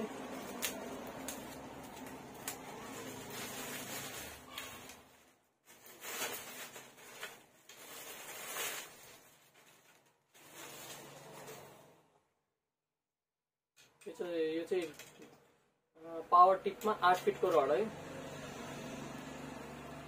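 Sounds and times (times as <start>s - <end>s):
rustling and handling noise: 0.0s - 12.2s, 13.8s - 15.6s.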